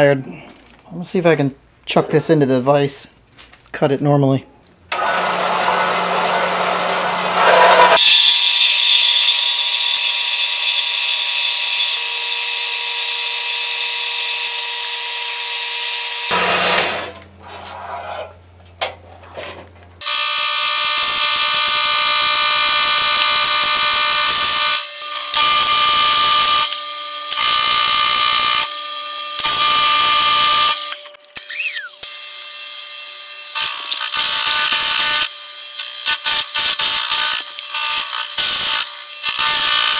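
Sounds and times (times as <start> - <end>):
milling machine cutting steel: 4.9 - 14.0, 20.0 - 28.7
bandsaw cutting steel: 4.9 - 18.4, 20.0 - 39.9.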